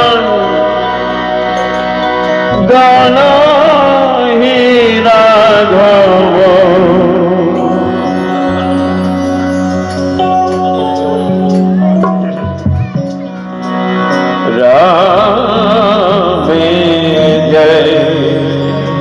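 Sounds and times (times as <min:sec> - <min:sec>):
harmonium holding chords: 0:00.0 - 0:19.0
wavering melody line: 0:07.4 - 0:19.0.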